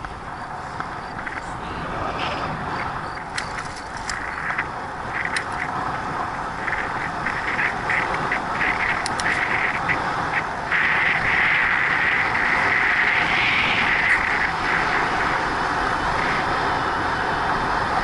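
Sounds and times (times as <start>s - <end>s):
light rattles and clicks: 0.0s - 13.1s
bicycle tyre noise on pavement: 0.0s - 18.0s
wind rushing over microphone: 0.0s - 18.0s.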